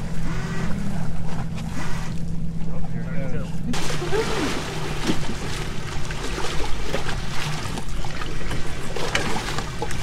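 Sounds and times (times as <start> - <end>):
water splashing: 3.7 - 10.0.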